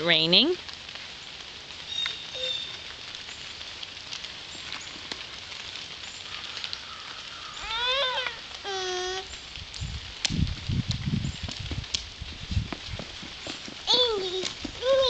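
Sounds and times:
light rain on pavement: 0.0 - 15.0
child's wordless vocal sound: 7.6 - 9.3, 13.9 - 15.0.

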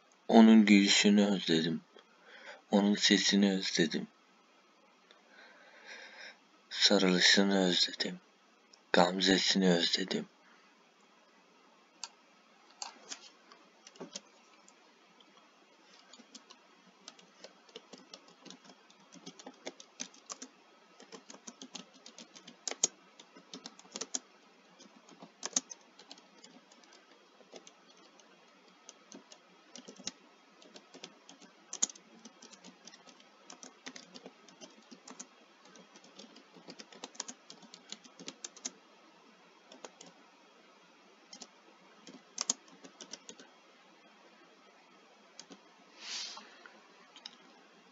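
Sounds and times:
keyboard typing clicks: 13.8 - 14.3, 16.0 - 24.2, 24.8 - 28.3, 28.9 - 38.8, 39.7 - 40.2, 41.3 - 43.4, 45.4 - 45.6.

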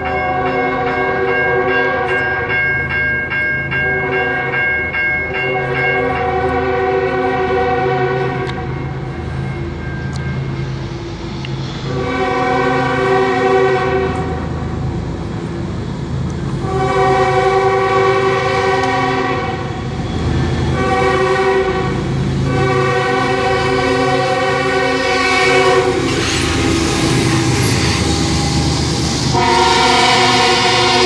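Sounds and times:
locomotive rumble: 0.0 - 31.0
train air horn blasts: 0.3 - 2.4, 6.0 - 8.8, 11.8 - 14.4, 16.6 - 19.8, 20.7 - 31.0.

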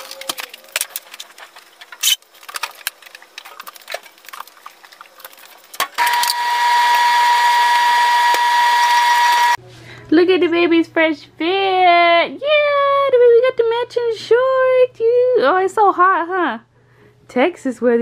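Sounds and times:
clothes dryer running: 5.7 - 9.6.

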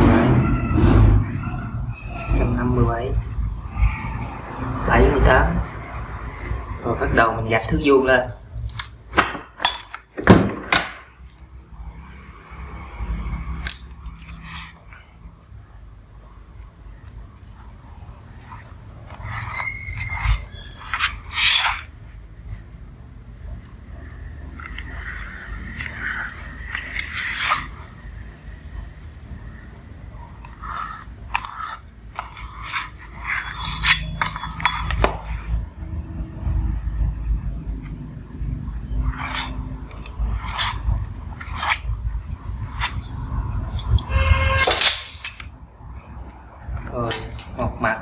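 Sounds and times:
pencil scratching on cardboard: 17.7 - 21.9, 24.7 - 27.9, 30.4 - 35.5, 39.0 - 41.9
metal square scraping on cardboard: 17.9 - 22.0, 24.6 - 28.1, 30.4 - 35.6, 38.9 - 42.0, 42.6 - 44.8.

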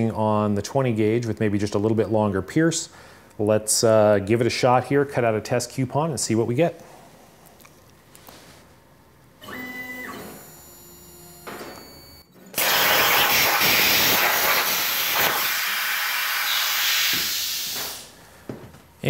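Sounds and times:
plasma torch cutting steel hiss: 12.6 - 18.1.

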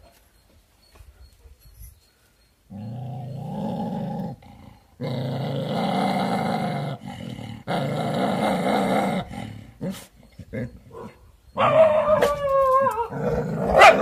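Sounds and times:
dog growling: 2.7 - 11.1, 13.0 - 14.0.

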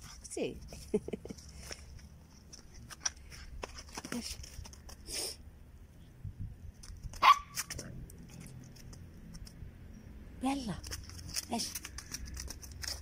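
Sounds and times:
soft clicks and rustles: 6.7 - 10.0, 10.8 - 13.0
puppy barking: 7.2 - 7.7.

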